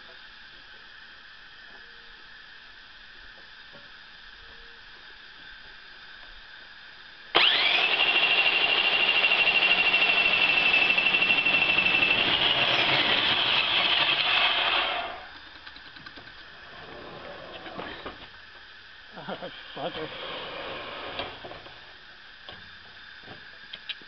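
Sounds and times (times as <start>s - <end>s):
saw motor winding down: 7.3s - 15.5s, 19.2s - 21.6s
band saw whining: 7.3s - 15.6s, 19.2s - 22.0s.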